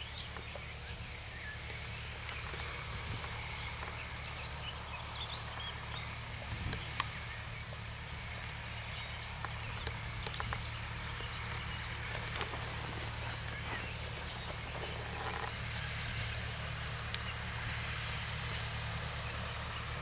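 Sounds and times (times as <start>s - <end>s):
distant tractor diesel engine droning: 0.0s - 20.0s
sharp clicks: 9.4s - 12.6s.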